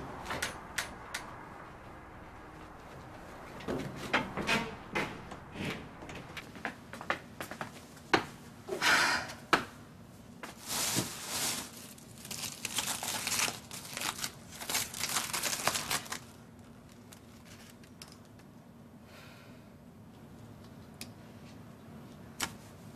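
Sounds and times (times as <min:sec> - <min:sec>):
paper rustling and shuffling: 0:10.4 - 0:17.9.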